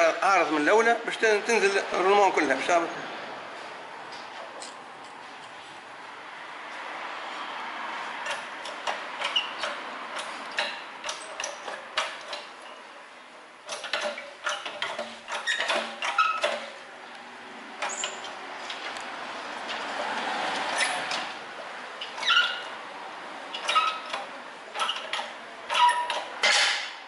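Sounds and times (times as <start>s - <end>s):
metallic clicks and knocks: 8.2s - 12.8s, 13.6s - 16.8s, 23.5s - 27.0s.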